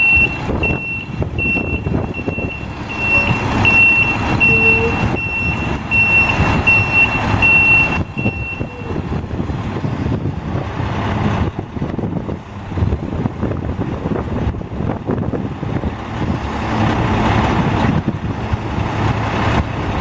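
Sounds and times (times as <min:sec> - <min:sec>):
backup alarm beeps: 0:00.0 - 0:09.0
garbage truck diesel engine: 0:00.0 - 0:20.0.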